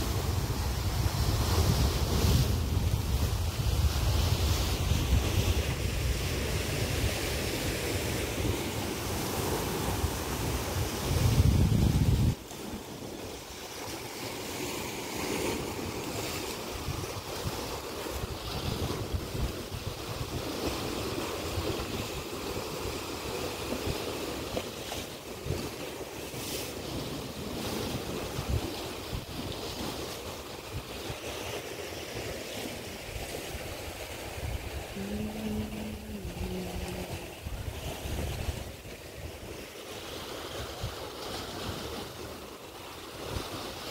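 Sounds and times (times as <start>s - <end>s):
wind buffeting microphone: 0.0s - 12.5s, 15.3s - 25.8s, 32.8s - 39.7s
waves against rocks: 0.0s - 43.9s
low steady tone: 35.0s - 37.8s.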